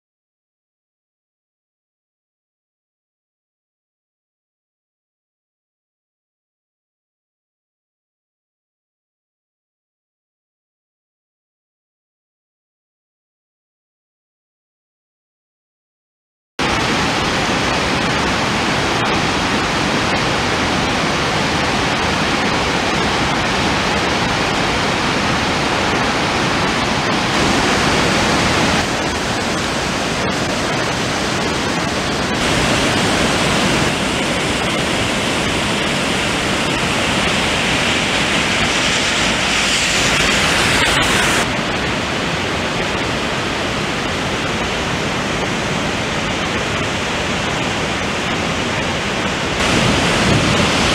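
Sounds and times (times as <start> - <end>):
rushing floodwater: 16.6 - 50.9.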